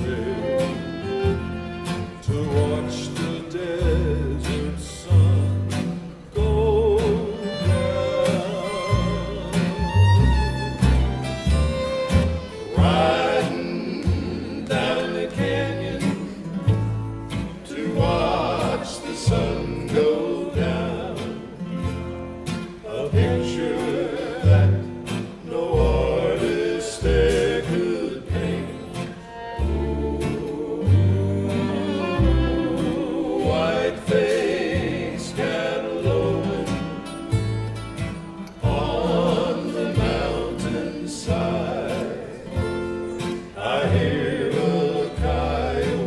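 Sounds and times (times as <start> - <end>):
bowed fiddle: 0.0 - 4.4, 6.6 - 15.0, 27.9 - 35.2
group singing in harmony: 0.0 - 46.0
plucked upright bass: 0.0 - 46.0
strummed acoustic guitars: 0.0 - 46.0.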